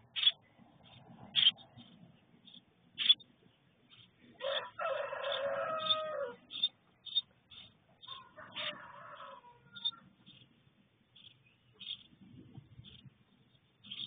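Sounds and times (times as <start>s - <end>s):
high bird chirps: 0.0s - 4.6s, 5.2s - 8.8s, 9.7s - 10.5s, 11.2s - 12.2s, 13.8s - 14.0s
rooster crowing: 4.4s - 6.4s, 8.1s - 10.0s.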